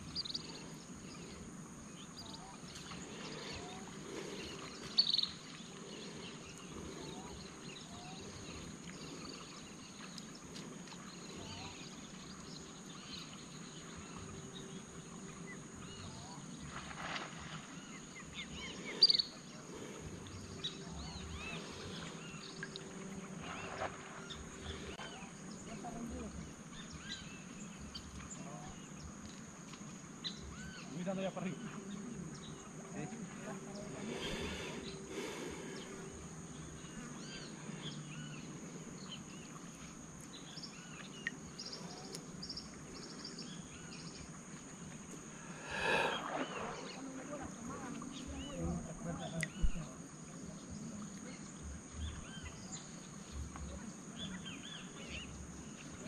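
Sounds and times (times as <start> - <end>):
birds chirping: 0.0 - 14.8, 17.7 - 29.1, 33.5 - 50.0.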